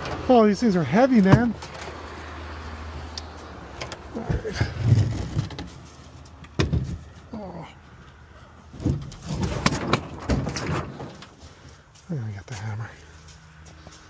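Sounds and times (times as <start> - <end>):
wooden panels knocking and scraping: 3.8 - 7.2, 8.7 - 11.4.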